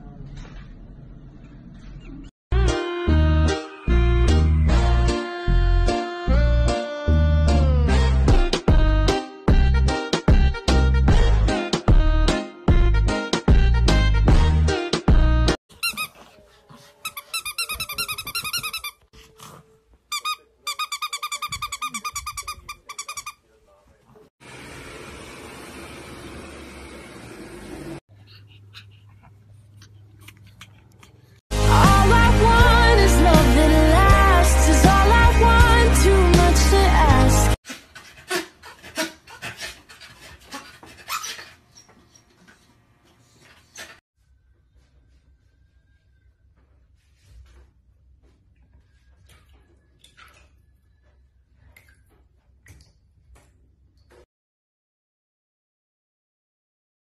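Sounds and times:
squeaky dog toy squeezed: 0:15.7 - 0:16.2, 0:17.0 - 0:19.1, 0:20.1 - 0:23.4
dog panting: 0:16.0 - 0:18.0, 0:28.1 - 0:31.4, 0:37.6 - 0:44.0.

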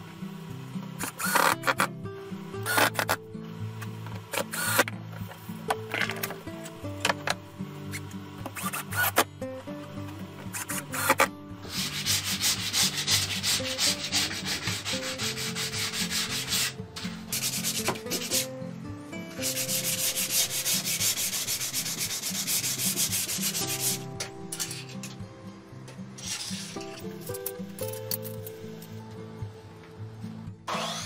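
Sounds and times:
soft background music: 0:00.0 - 0:31.0
sanding block rubbing wood: 0:10.6 - 0:18.5, 0:19.4 - 0:24.0.

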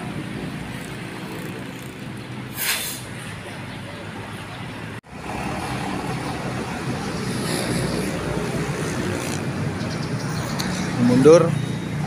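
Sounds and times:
road traffic: 0:00.0 - 0:12.0.

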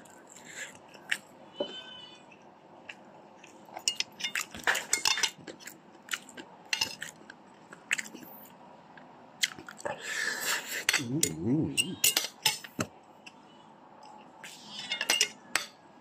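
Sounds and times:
man chewing food: 0:00.0 - 0:01.4, 0:02.3 - 0:12.0.

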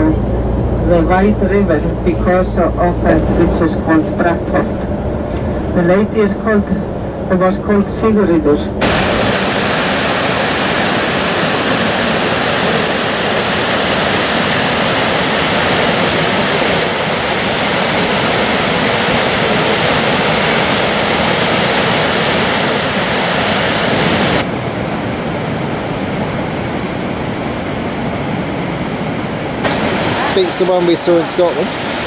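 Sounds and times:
waterfall rushing: 0:08.8 - 0:24.6, 0:26.9 - 0:32.0.

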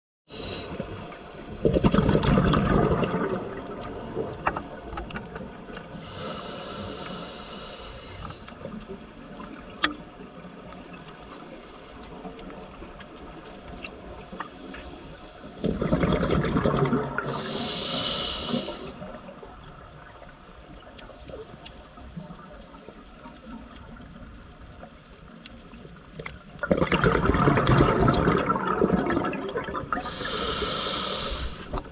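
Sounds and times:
rush of exhaled bubbles: 0:01.5 - 0:06.3, 0:15.6 - 0:19.4, 0:26.6 - 0:31.9
hissing regulator breath: 0:05.8 - 0:08.6, 0:17.2 - 0:19.2, 0:29.9 - 0:31.9.

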